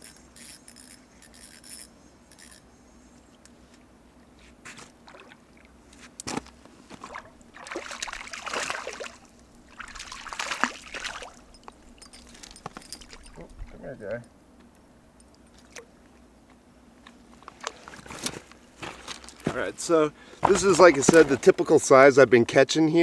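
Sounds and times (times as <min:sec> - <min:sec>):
shallow water splashing: 0:04.9 - 0:05.9, 0:06.8 - 0:12.0.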